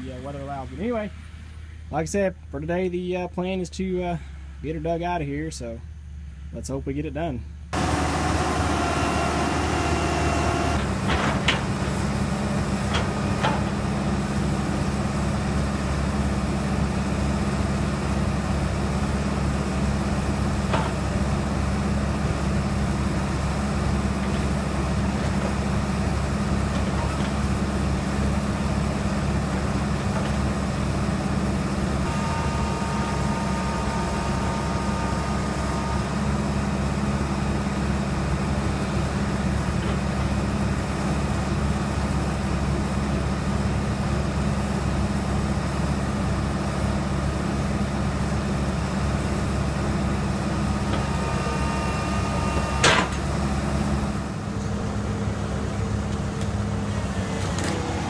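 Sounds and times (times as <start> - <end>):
excavator engines droning: 0.0 - 58.0
faint high whine: 32.1 - 36.3.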